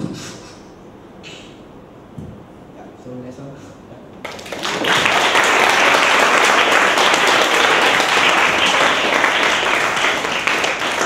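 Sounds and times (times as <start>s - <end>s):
audience applause: 4.2s - 11.0s.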